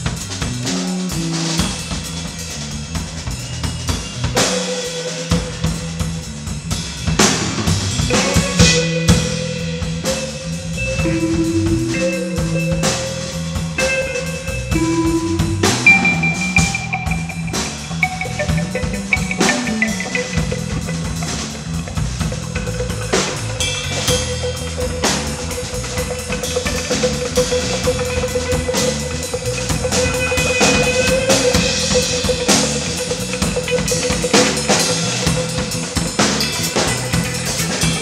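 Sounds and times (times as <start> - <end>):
drum kit beat: 0.0 - 38.0
rock band playing: 0.0 - 38.0
electric guitar long notes: 8.1 - 38.0.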